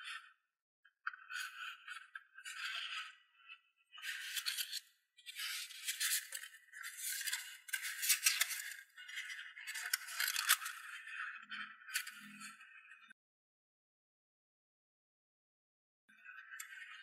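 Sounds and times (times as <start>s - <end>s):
paper rustling and crinkling: 7.0s - 8.7s.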